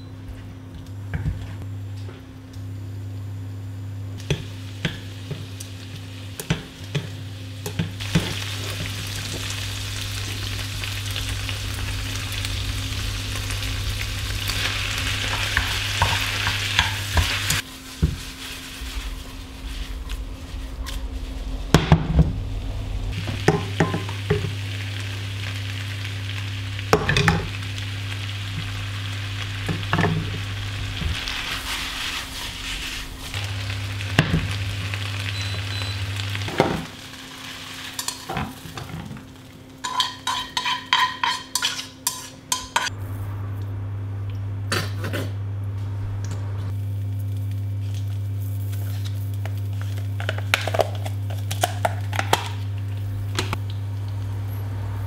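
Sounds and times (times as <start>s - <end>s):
steady low hum: 0.0s - 55.0s
vegetables sizzling in a wok: 3.7s - 43.3s, 46.7s - 55.0s
spatula scraping and knocking pan: 39.8s - 42.9s.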